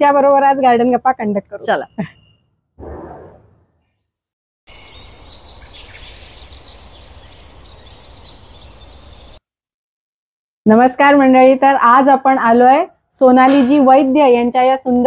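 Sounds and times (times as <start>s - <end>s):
small birds chirping: 0.4s - 2.5s, 3.4s - 9.4s.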